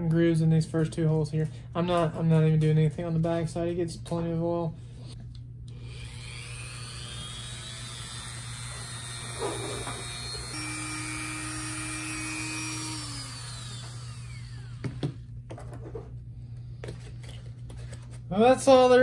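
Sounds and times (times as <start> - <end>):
rotary tool whining: 5.7 - 15.2.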